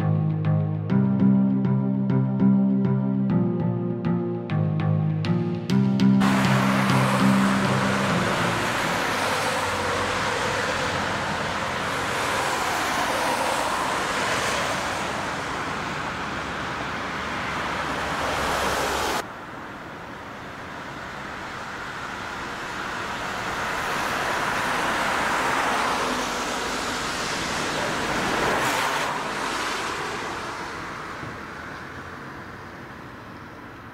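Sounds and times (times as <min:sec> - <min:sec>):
car approaching: 0:00.0 - 0:33.9
car tyre and engine hiss: 0:06.2 - 0:33.9.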